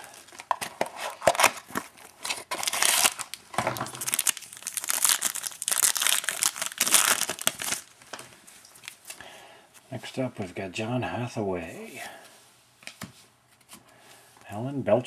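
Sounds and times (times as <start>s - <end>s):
foil pack crinkling: 0.0s - 9.2s.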